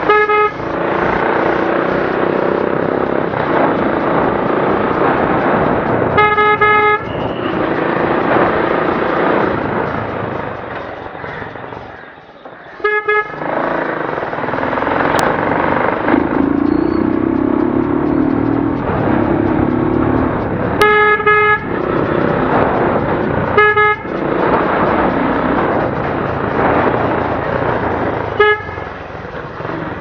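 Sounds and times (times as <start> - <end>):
motorcycle horn toots: 0.0 - 0.7, 6.2 - 7.6, 12.8 - 13.4, 20.8 - 21.7, 23.6 - 24.1, 28.3 - 28.8
motorcycle engine at low speed: 0.0 - 11.8, 12.8 - 30.0.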